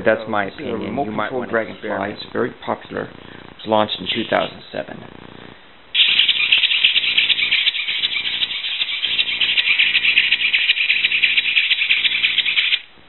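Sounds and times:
toy motor flapping wings clatter: 6.0s - 12.9s.

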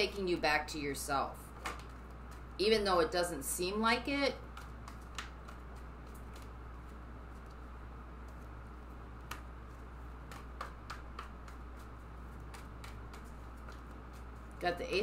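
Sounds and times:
steady low hum: 0.0s - 15.0s
cards shuffled by hand: 1.6s - 2.6s, 4.4s - 15.0s.

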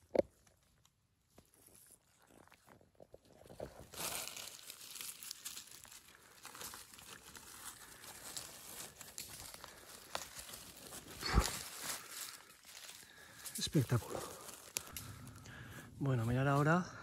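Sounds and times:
dry leaves rustling and crackling: 3.6s - 15.4s.

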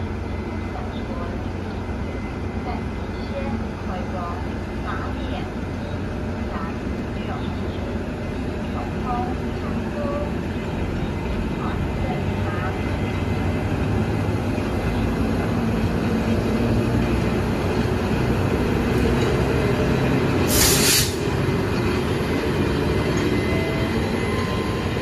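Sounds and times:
train rumbling on rails: 0.0s - 25.0s
air hiss: 20.5s - 21.2s.

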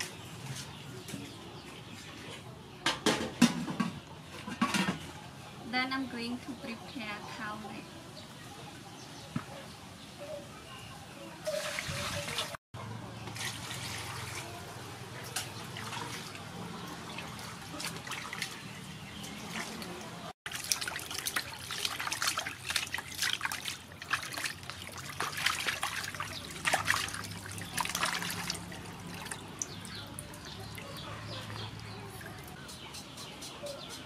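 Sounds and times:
water sloshing in a metal basin: 11.4s - 32.7s.

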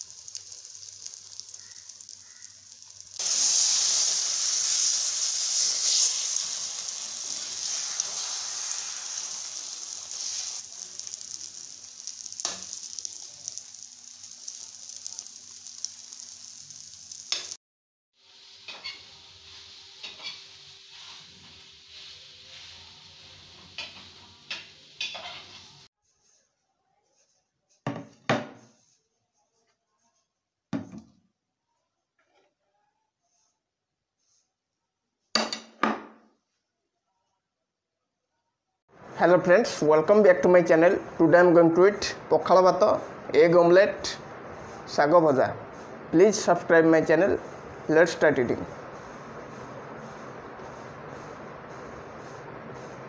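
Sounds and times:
omelette sizzling in pan: 0.0s - 17.6s, 18.2s - 25.9s, 38.9s - 53.0s.

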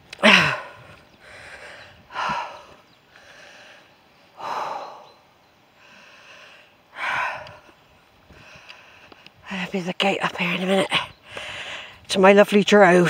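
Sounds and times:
person breathing hard: 0.2s - 5.2s, 5.8s - 9.2s, 11.3s - 12.0s.

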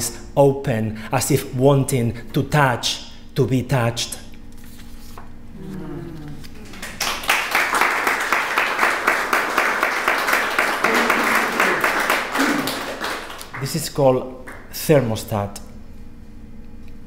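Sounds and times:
audience applauding: 6.6s - 14.8s.

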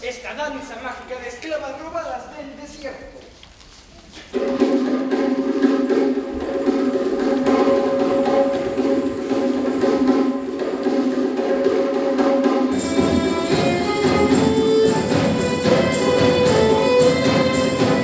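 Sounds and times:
hand percussion: 4.3s - 18.0s
live dance music: 4.3s - 18.0s
strings playing: 4.6s - 18.0s.

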